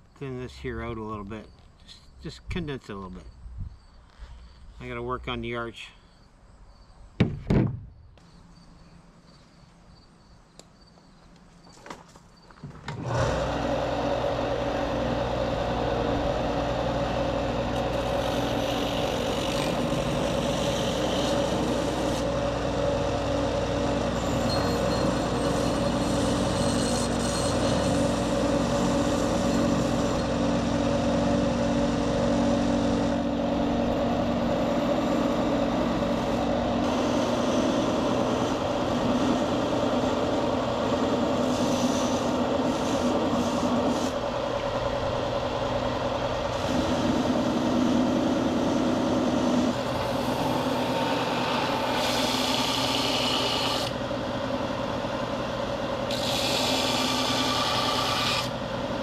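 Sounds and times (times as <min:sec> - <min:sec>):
sharp knocks: 0:07.2 - 0:07.9
belt sander running: 0:12.9 - 0:59.0.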